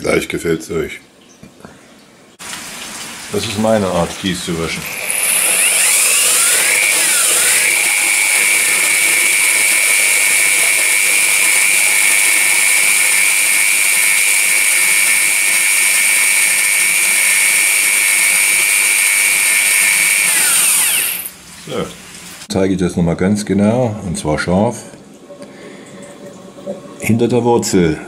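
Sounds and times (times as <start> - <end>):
electric mixer motor whine: 4.7 - 21.3.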